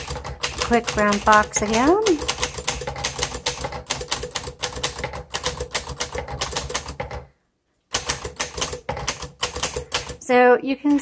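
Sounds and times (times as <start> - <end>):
manual typewriter typing: 0.0 - 7.3, 7.9 - 11.0.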